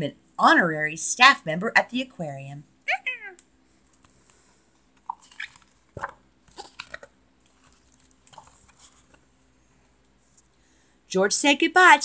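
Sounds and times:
paper page rustling: 5.1 - 9.4.

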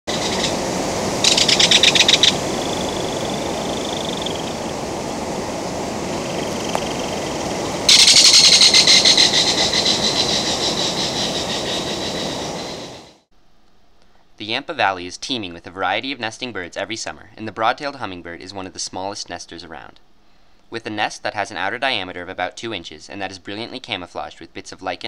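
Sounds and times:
bird rattling call: 0.1 - 0.6, 1.2 - 4.6, 6.2 - 13.1
low rushing background: 0.1 - 13.1.

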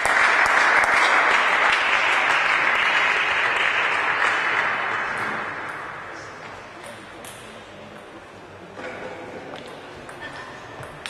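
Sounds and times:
spectators applauding: 0.0 - 5.2.

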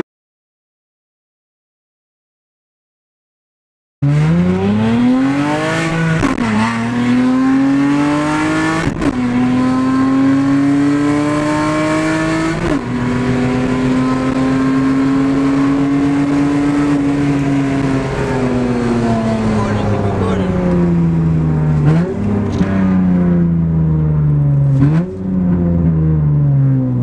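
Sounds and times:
car engine accelerating: 4.0 - 27.0.

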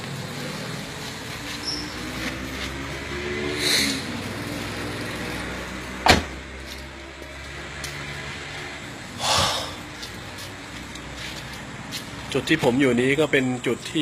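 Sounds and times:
vehicle engine humming: 0.0 - 14.0.

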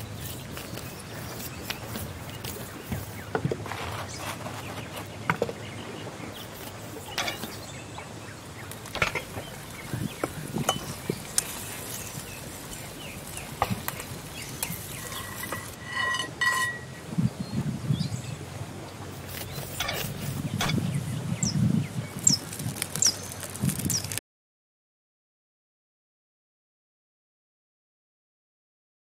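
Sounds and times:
tongs clinking on metal lid: 7.2 - 7.6, 10.6 - 12.2, 13.5 - 17.0.

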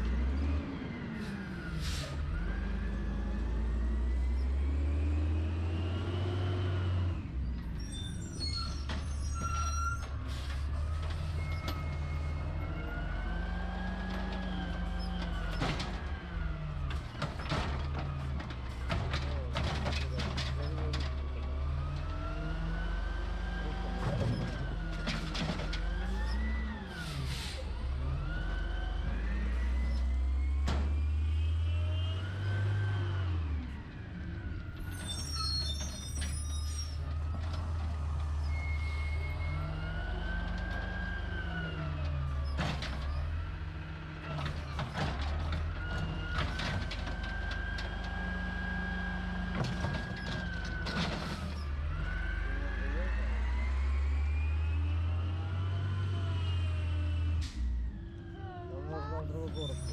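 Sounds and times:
air brake hiss: 1.8 - 2.2, 27.0 - 27.7
garbage truck engine revving: 37.1 - 59.9.

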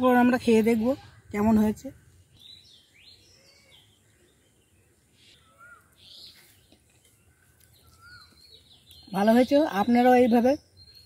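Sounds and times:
faint birds chirping: 0.0 - 11.0.

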